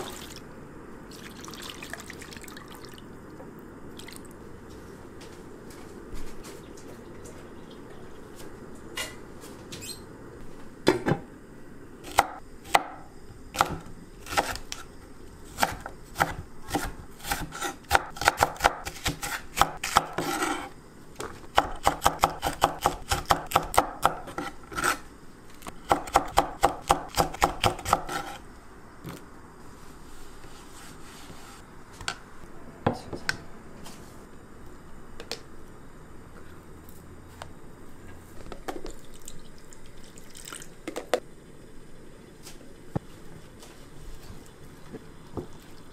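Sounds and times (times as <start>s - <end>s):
knife chopping on wooden board: 15.6s - 20.6s, 21.6s - 25.0s, 25.9s - 28.4s.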